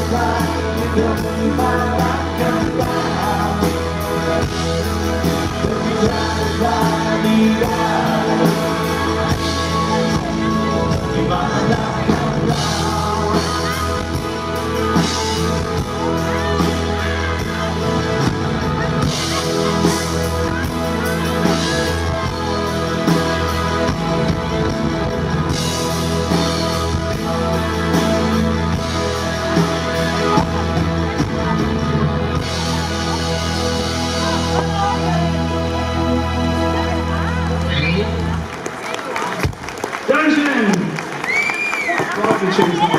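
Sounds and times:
live rock band playing: 0:00.0 - 0:42.9.

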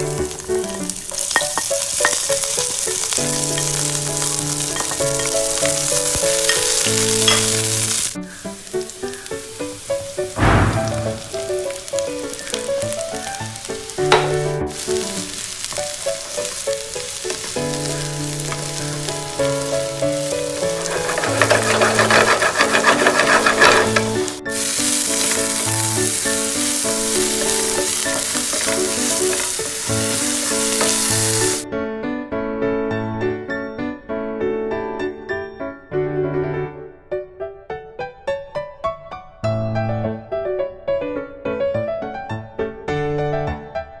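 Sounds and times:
vegetables sizzling in hot oil: 0:00.0 - 0:31.6
spatula stirring and scraping: 0:01.1 - 0:08.2, 0:17.2 - 0:31.6.

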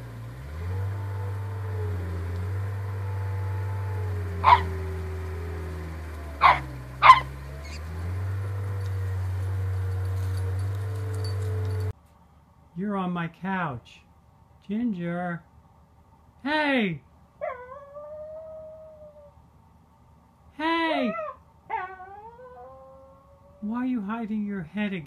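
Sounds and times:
puppy barking: 0:04.4 - 0:04.8, 0:06.4 - 0:07.8.

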